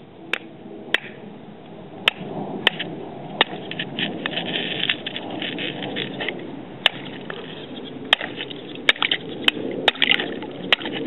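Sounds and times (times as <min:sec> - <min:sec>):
ice crackling: 0:03.5 - 0:11.0.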